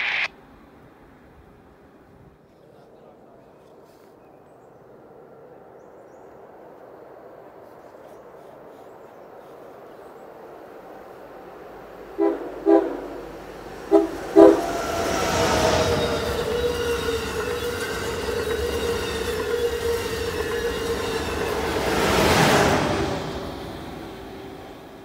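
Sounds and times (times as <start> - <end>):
train wheels rushing on rail: 11.4 - 25.0
train horn toots: 12.1 - 21.6.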